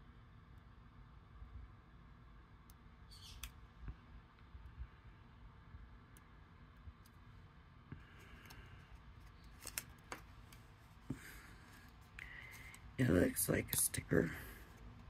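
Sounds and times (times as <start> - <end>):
paper pieces clicking and rustling: 9.3 - 10.7.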